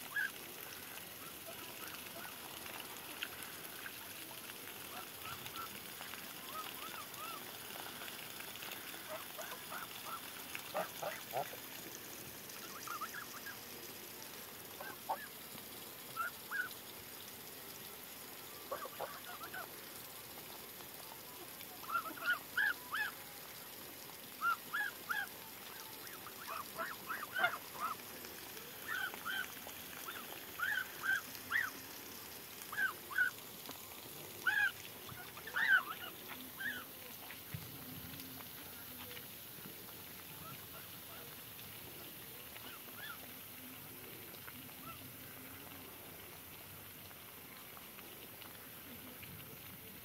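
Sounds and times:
geese honking: 26.4 - 28.0.

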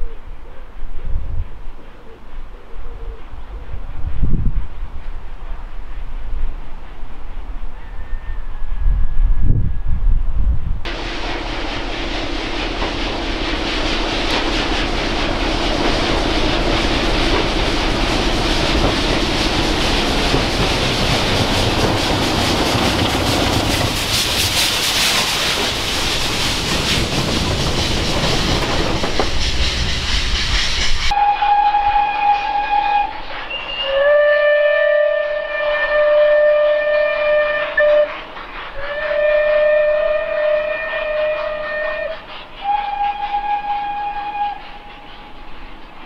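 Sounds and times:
diesel locomotive engine drone: 0.0 - 46.0
train clattering over rail joints: 10.9 - 31.1.

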